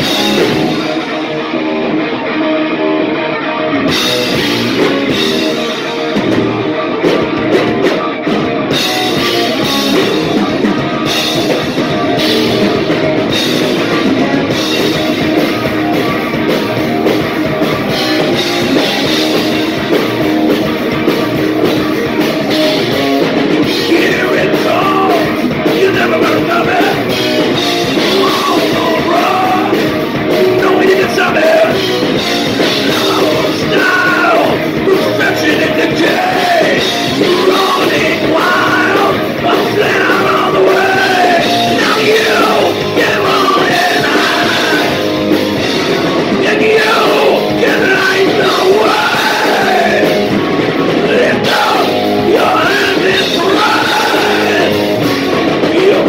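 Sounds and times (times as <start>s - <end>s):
heavy rock band playing: 0.0s - 56.0s
man singing into a microphone: 23.7s - 27.2s, 27.9s - 29.9s, 30.5s - 31.8s, 32.7s - 45.0s, 46.4s - 50.3s, 51.0s - 56.0s.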